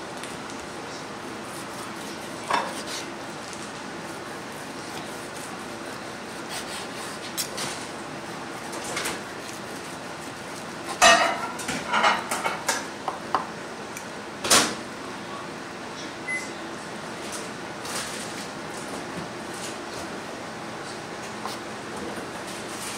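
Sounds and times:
knife and fork scraping on board: 0:01.5 - 0:03.7.

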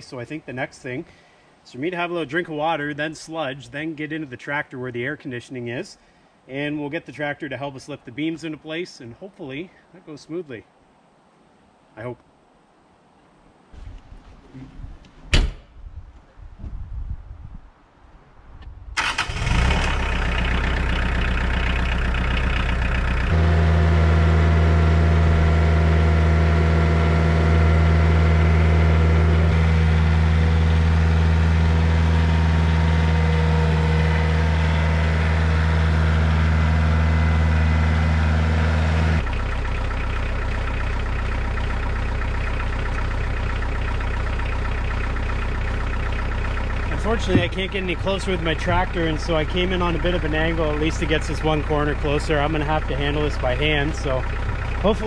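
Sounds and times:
tractor diesel engine running: 0:19.0 - 0:55.0.

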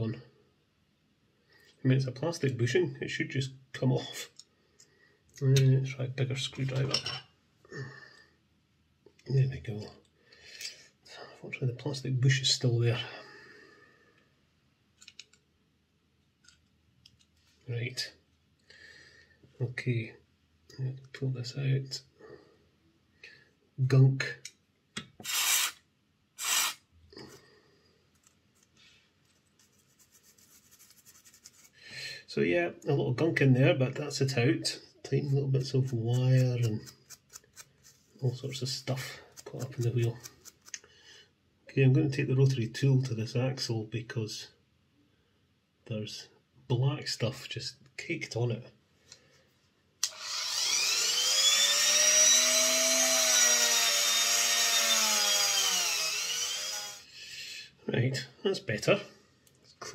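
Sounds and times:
small tool scraping and clicking: 0:15.0 - 0:15.4, 0:35.8 - 0:38.1, 0:39.3 - 0:40.9
aerosol spray hiss: 0:25.2 - 0:25.8
rotary tool wire wheel whining: 0:50.1 - 0:57.0.

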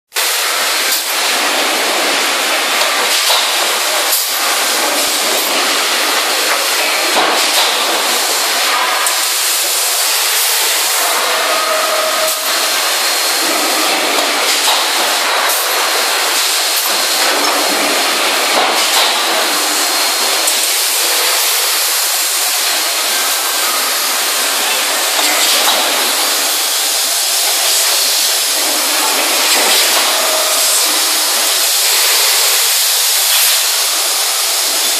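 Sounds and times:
machinery hissing: 0:00.1 - 0:34.9.

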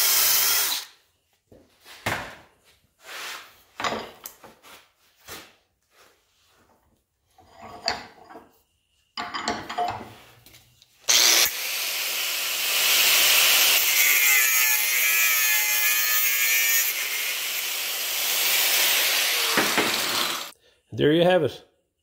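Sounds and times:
angle grinder cutting metal: 0:00.0 - 0:00.9, 0:11.1 - 0:20.5.

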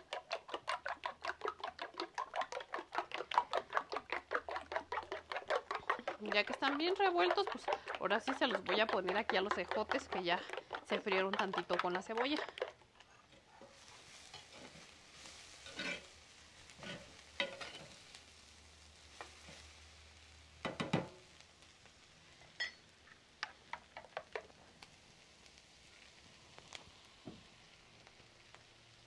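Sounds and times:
spoon scraping clay pot: 0:00.0 - 0:16.1, 0:16.7 - 0:18.0
faint sizzle: 0:00.0 - 0:29.0.

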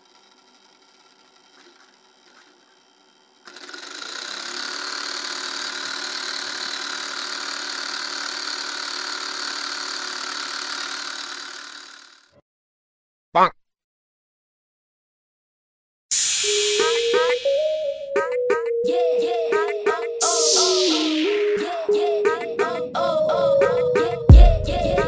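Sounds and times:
small motor whirring: 0:00.0 - 0:12.4.

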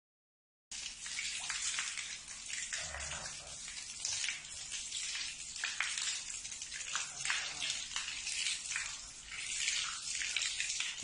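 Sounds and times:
hose water splashing on stone: 0:00.7 - 0:11.0.

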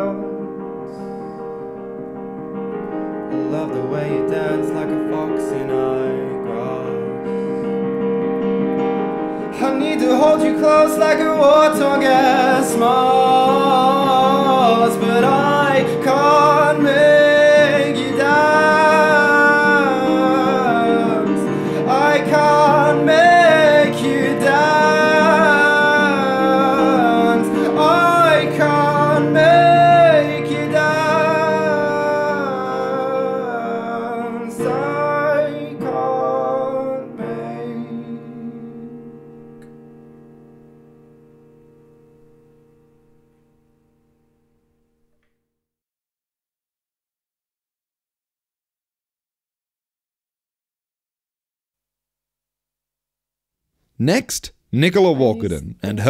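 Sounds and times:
man singing: 0:00.0 - 0:00.6, 0:03.3 - 0:07.7, 0:09.4 - 0:39.2, 0:54.0 - 0:56.0
piano chords: 0:00.0 - 0:45.0.

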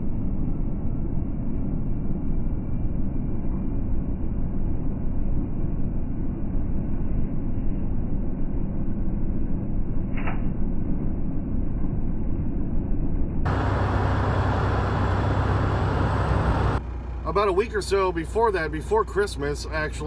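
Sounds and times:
truck engine and tyres rumbling: 0:12.7 - 0:20.0.

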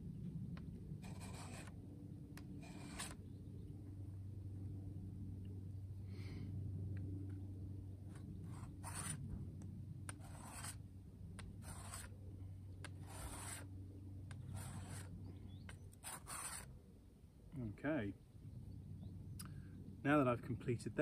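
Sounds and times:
blade scraping on sharpening plate: 0:11.6 - 0:12.1, 0:13.0 - 0:13.7, 0:14.4 - 0:15.1, 0:16.0 - 0:16.7.

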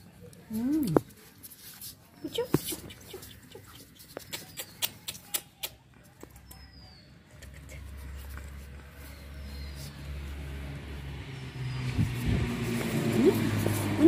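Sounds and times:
clicks and taps on concrete: 0:02.4 - 0:06.6.

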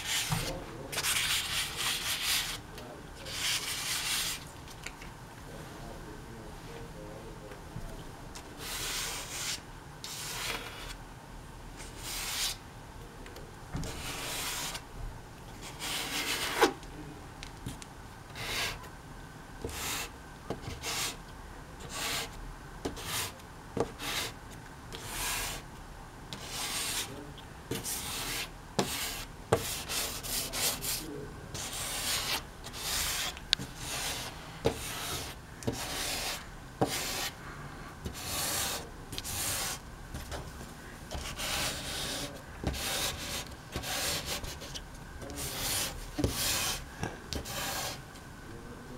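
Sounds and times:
comb rasping across wet paint: 0:31.6 - 0:37.4, 0:41.1 - 0:48.0.

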